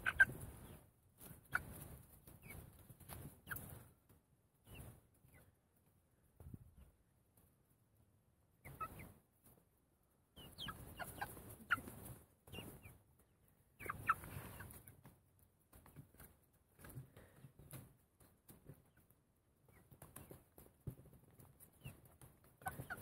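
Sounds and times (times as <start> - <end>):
chickens clucking and peeping: 0.0 - 23.0
rustling noise: 11.0 - 19.1.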